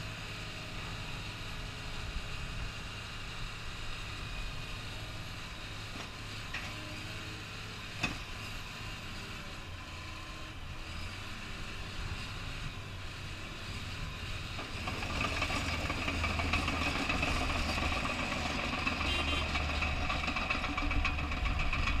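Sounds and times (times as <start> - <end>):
bulldozer moving on tracks: 0.0 - 22.0
diesel engine idling: 11.4 - 22.0.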